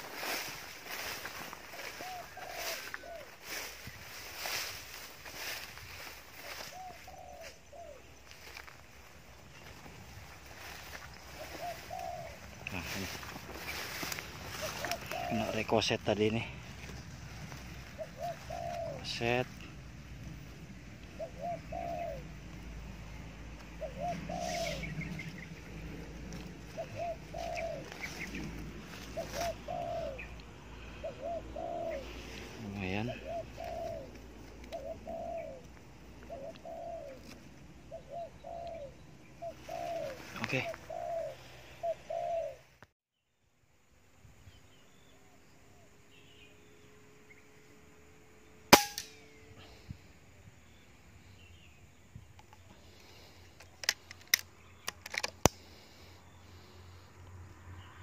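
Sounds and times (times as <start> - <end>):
leaves rustling: 0.0 - 37.8, 38.4 - 41.8
dove cooing: 0.0 - 42.7
air rifle shot crack: 48.7 - 49.3.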